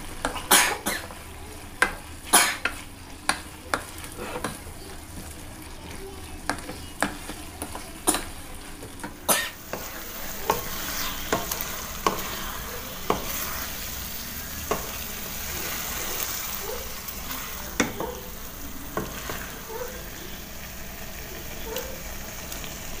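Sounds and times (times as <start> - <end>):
food sizzling in a wok: 0.0 - 23.0
spatula scraping a wok: 2.2 - 5.4, 6.5 - 19.7.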